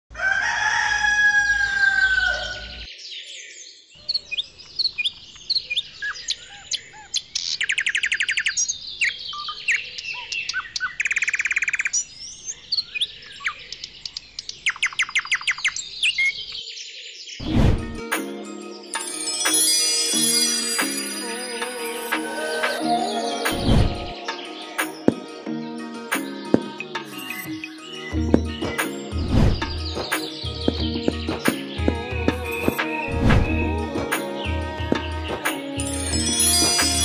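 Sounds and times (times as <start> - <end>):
songbirds chirping: 1.0 - 21.3, 21.9 - 37.0
short loud whoosh: 17.4 - 18.0, 29.2 - 29.8, 33.1 - 33.7.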